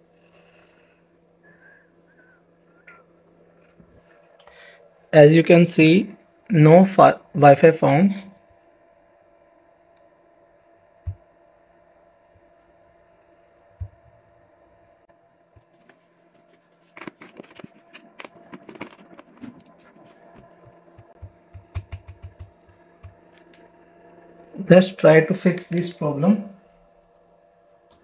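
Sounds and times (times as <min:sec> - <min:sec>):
steady faint hum: 0:00.0 - 0:28.0
clicks and rustling: 0:15.6 - 0:23.6
handling thumps: 0:16.9 - 0:23.5.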